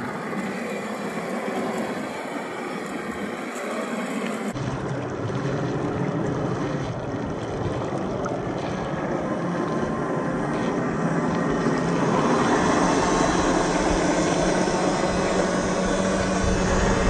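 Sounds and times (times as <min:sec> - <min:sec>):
tyres splashing through muddy water: 0:04.5 - 0:17.0.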